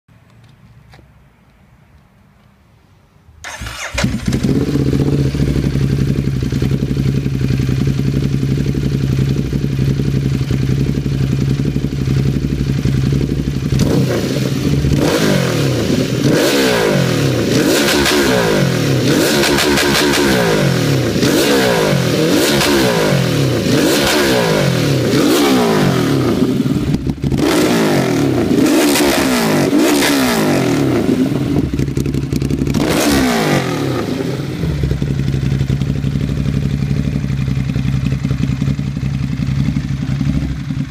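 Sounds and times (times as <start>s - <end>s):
motorcycle engine revving: 3.4s - 40.9s
motorcycle engine starting: 3.4s - 40.9s
motorcycle engine idling: 3.6s - 17.6s, 18.4s - 27.6s, 30.9s - 33.0s, 33.6s - 40.9s.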